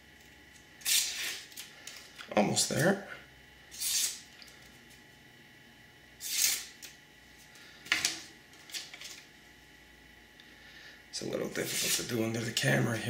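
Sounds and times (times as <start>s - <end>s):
knife slicing paper: 0.8s - 1.5s, 3.8s - 4.2s, 6.2s - 6.7s.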